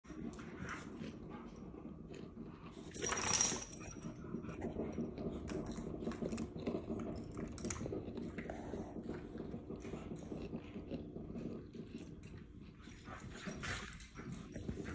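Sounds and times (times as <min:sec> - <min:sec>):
dog collar jingling: 0:02.9 - 0:04.2.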